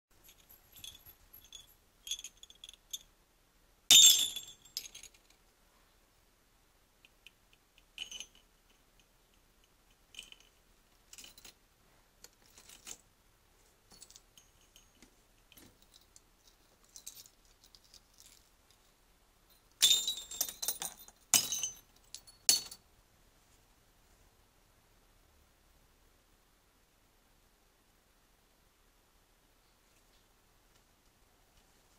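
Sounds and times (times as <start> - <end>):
small bells jingling: 0.1 - 3.1, 3.9 - 5.2, 8.0 - 9.1, 10.1 - 11.6, 19.5 - 22.8.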